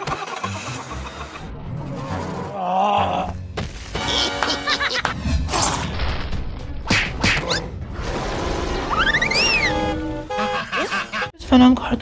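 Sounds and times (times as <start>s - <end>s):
cartoon background music: 2.2s - 11.4s.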